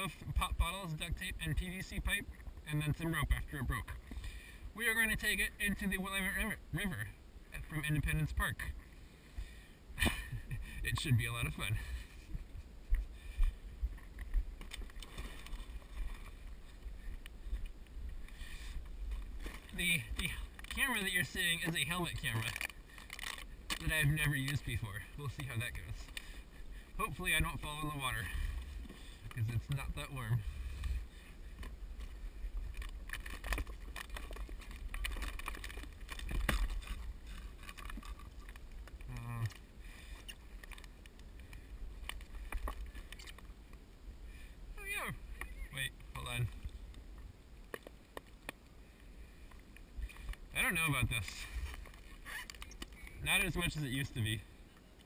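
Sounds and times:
wind rumbling on microphone: 10.0 - 47.6.

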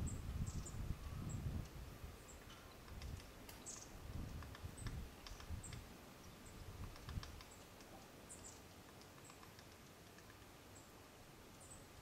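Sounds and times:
woodpecker tapping on bark: 2.4 - 5.9, 6.6 - 10.6.

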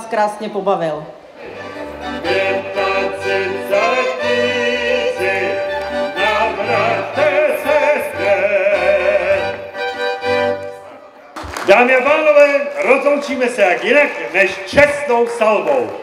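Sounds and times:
violin: 1.4 - 11.0
accordion: 1.4 - 11.1.

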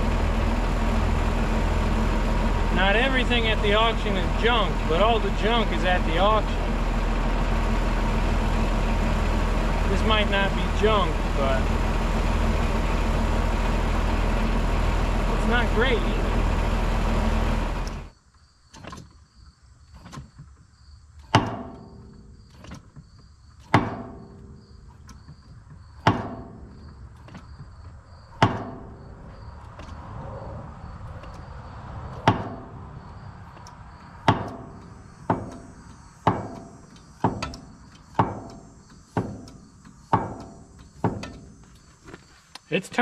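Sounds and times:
sharp metallic knocks: 21.2 - 23.0, 23.6 - 30.0, 32.1 - 42.0.

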